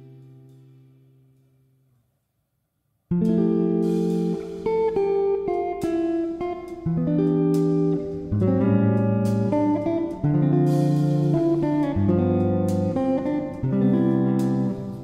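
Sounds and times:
plucked guitar instrumental: 3.1s - 15.0s.

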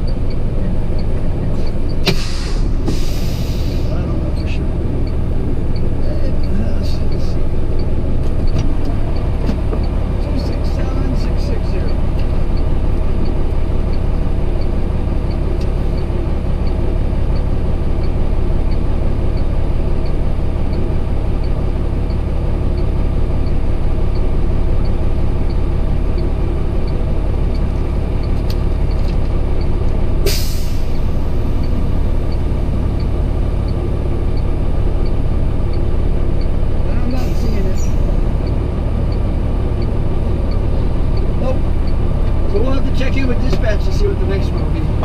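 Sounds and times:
diesel truck engine idling: 0.0s - 45.0s
air brake hiss: 2.1s - 3.9s, 30.3s - 31.0s
faint regular ticking: 3.9s - 45.0s.

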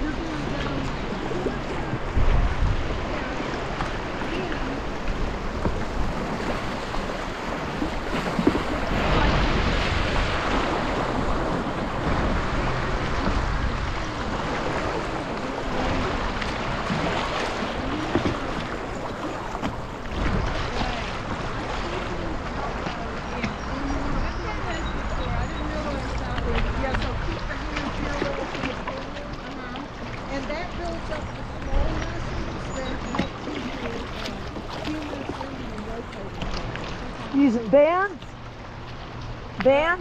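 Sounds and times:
river water rushing: 0.0s - 40.0s
wind buffeting microphone: 0.0s - 40.0s.

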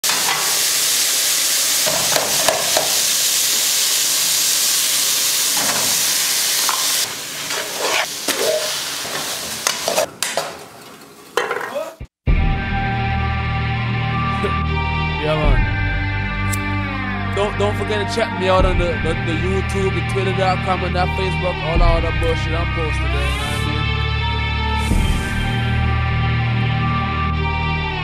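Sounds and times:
boiling pot hissing: 0.0s - 10.1s.

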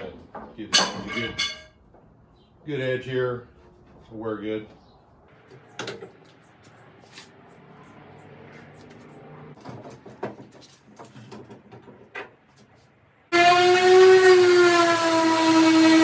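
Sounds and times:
orbit sander whining: 13.3s - 16.0s.

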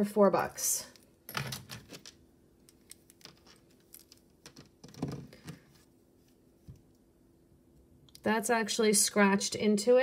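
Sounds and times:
jewelry clicking and rustling: 0.9s - 5.6s.

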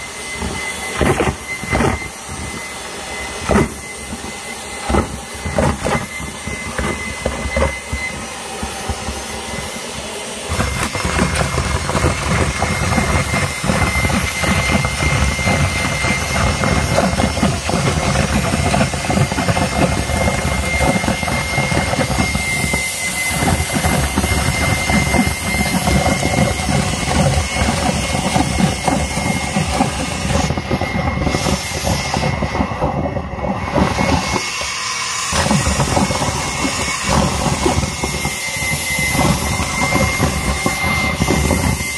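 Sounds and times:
handheld vacuum whining: 0.0s - 41.9s.

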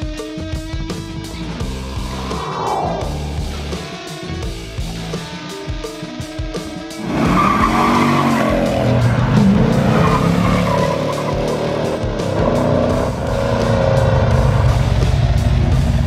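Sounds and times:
guitar music: 0.0s - 15.4s
car engine revving: 1.1s - 5.2s, 6.9s - 16.0s
tires squealing: 7.0s - 14.7s.

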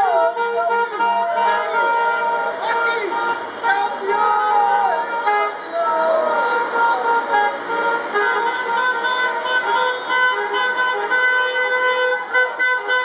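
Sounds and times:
people shouting: 0.0s - 7.3s
car horns honking: 0.0s - 13.0s.

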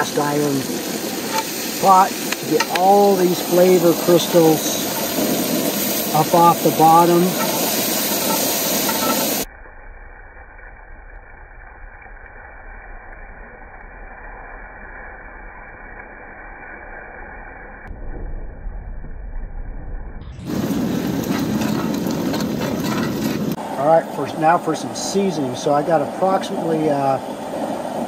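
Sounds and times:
wine sizzling in hot pot: 0.0s - 9.5s, 20.4s - 23.6s.

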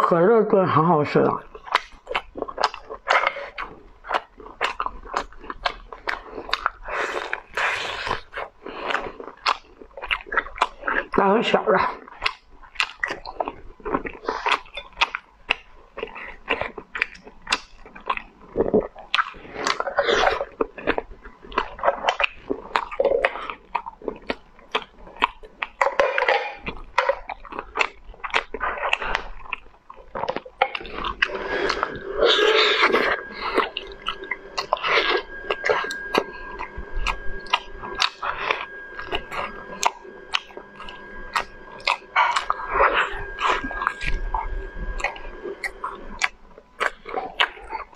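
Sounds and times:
chewing: 1.2s - 47.9s
sucking: 1.8s - 9.6s, 30.2s - 47.9s.

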